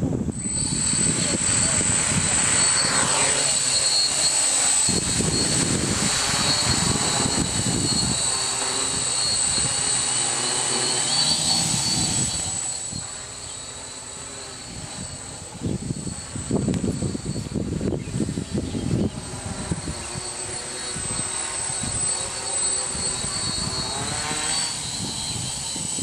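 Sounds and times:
drone motors whining: 0.0s - 26.0s.

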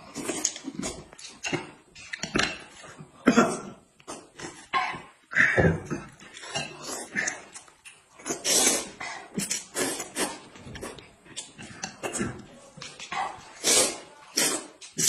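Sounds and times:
man slurping noodles: 8.2s - 11.0s, 13.6s - 15.0s.

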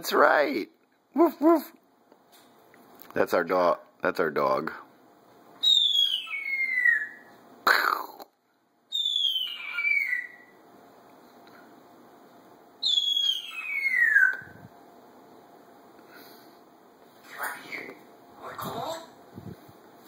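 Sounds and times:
parrot whistling falling notes: 5.6s - 7.3s, 8.9s - 10.5s, 12.8s - 14.6s.

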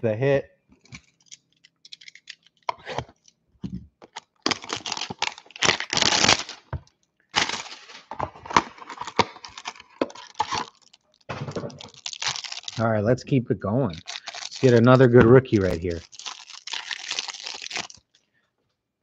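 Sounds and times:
cardboard box tearing and crinkling: 4.4s - 6.7s, 7.4s - 11.0s, 11.7s - 12.8s, 14.0s - 18.0s.

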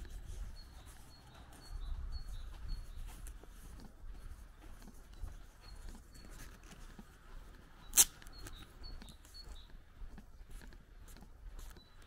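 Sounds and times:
footsteps on grass: 0.0s - 12.0s
small birds chirping: 0.0s - 12.0s
sharp click: 7.9s - 8.6s.

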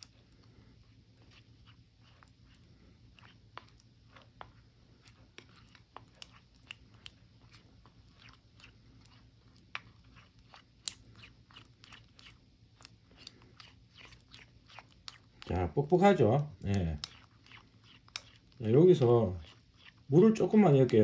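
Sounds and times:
spoon stirring sticky sauce: 0.0s - 21.0s.

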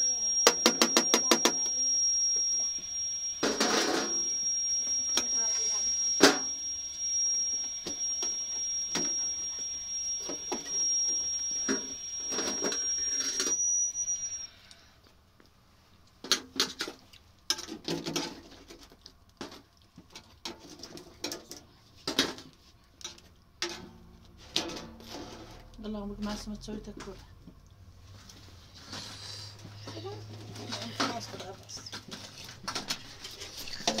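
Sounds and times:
high-pitched whine over hiss: 0.0s - 14.9s.

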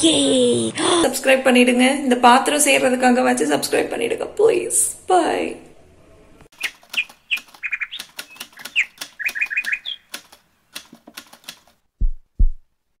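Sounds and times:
typewriter key clacks: 10.1s - 11.7s
deep thumps: 12.0s - 12.7s.

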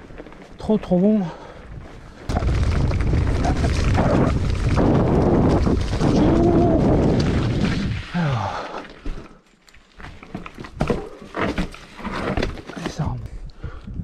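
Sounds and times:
wind buffeting microphone: 1.6s - 8.0s, 13.4s - 14.0s.

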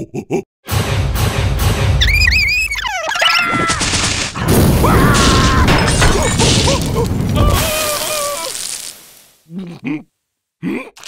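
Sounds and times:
cartoon yelling and squealing: 2.0s - 4.0s, 7.4s - 8.7s
cartoon crashing and banging: 2.2s - 9.2s.

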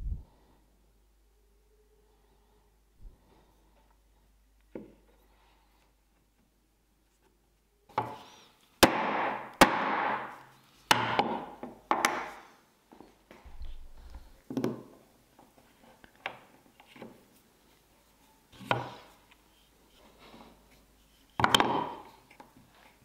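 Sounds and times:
chisel knocks and taps: 14.5s - 14.9s, 21.3s - 22.5s.

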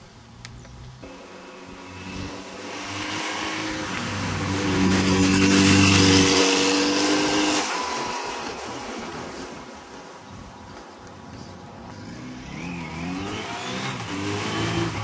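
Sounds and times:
motorcycle engine passing by: 1.0s - 9.7s, 11.9s - 15.0s.

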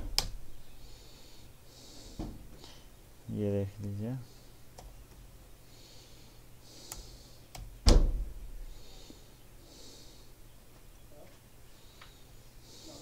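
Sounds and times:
loud short thump: 7.8s - 8.3s.

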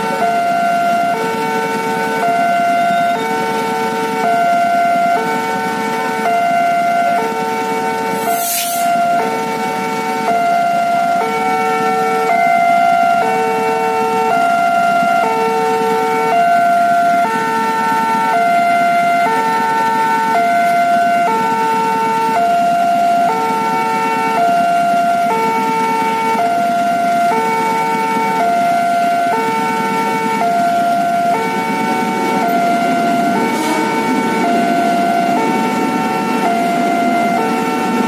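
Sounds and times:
idling traffic hum: 9.1s - 38.0s.

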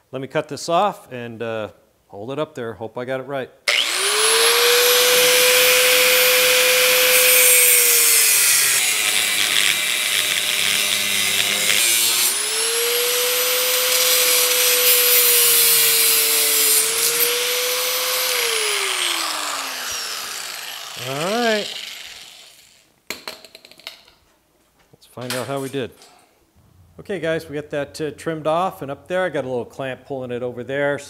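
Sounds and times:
grinding of metal being cut: 3.7s - 22.7s
angle grinder whining: 3.7s - 22.9s.

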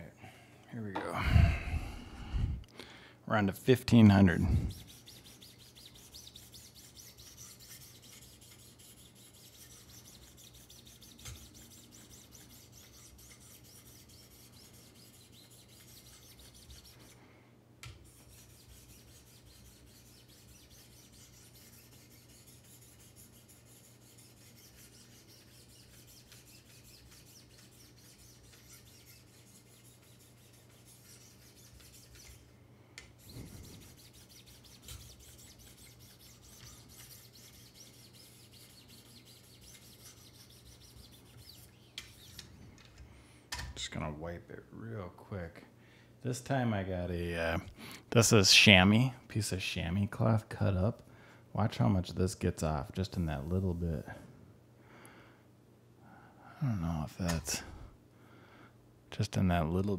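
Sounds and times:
sharpening stone rubbing knife: 4.7s - 17.2s, 18.0s - 32.4s, 33.2s - 42.4s.

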